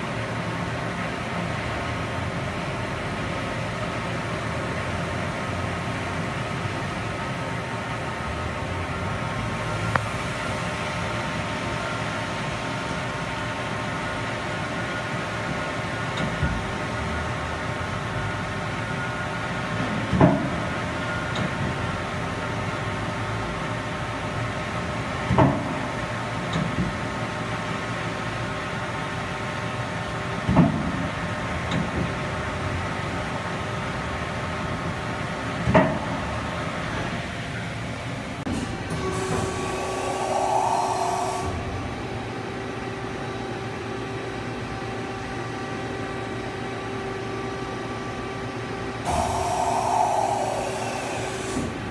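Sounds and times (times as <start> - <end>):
machine steady hum: 37.7 - 51.9.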